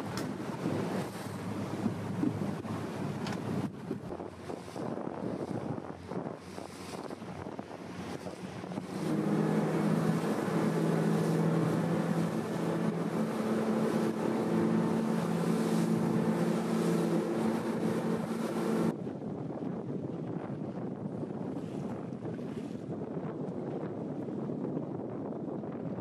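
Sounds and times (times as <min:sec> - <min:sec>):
motorboat engine drone: 0:00.0 - 0:19.7
wind: 0:00.0 - 0:26.0.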